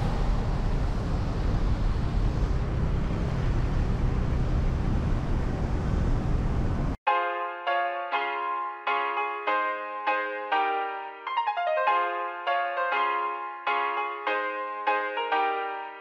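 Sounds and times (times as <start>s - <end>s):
traffic engine rumble: 0.0s - 7.0s
piano music: 7.1s - 16.0s.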